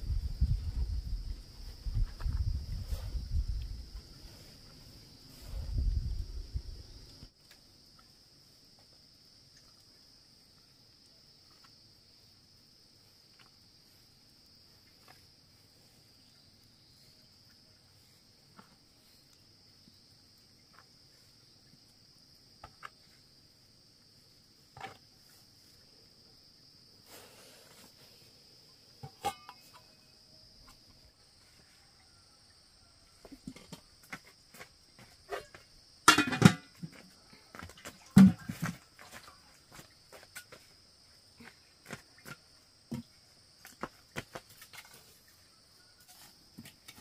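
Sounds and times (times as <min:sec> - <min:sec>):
insects chirring: 0:00.0 - 0:47.0
metal pot and lid clatter: 0:29.0 - 0:29.7, 0:36.0 - 0:36.8.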